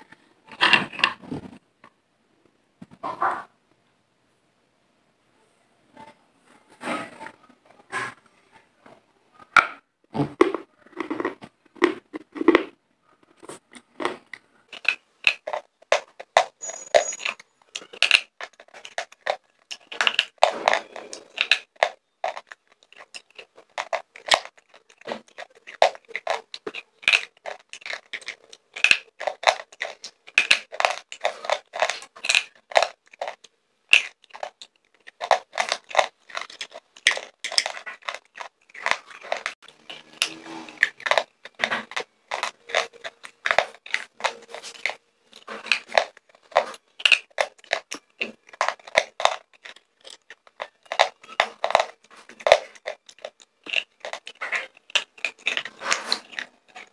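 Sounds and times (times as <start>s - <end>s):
pencils crunching when chewed: 10.2s - 56.9s.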